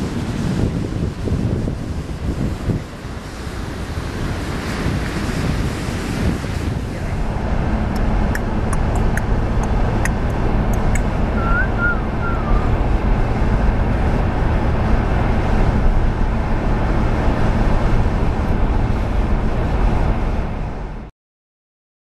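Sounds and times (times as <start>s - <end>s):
car engine and tyre rumble: 0.0s - 21.1s
light ticks: 7.9s - 11.1s.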